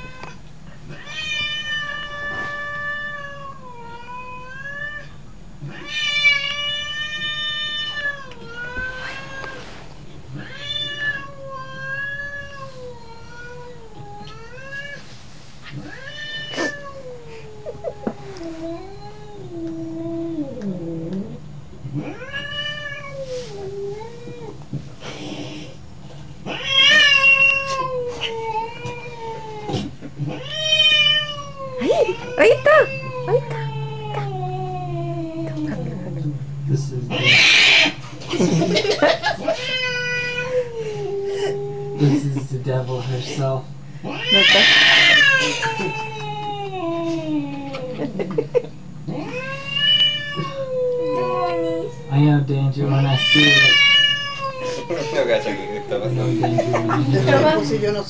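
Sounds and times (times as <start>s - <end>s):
cat meowing: 0.0s - 9.6s, 10.3s - 15.0s, 15.7s - 24.6s, 26.4s - 35.9s, 37.1s - 38.0s, 39.4s - 42.0s, 44.0s - 48.0s, 49.1s - 58.0s
cat meowing in wavering yowls: 30.3s - 35.9s, 44.0s - 47.9s, 49.1s - 52.2s.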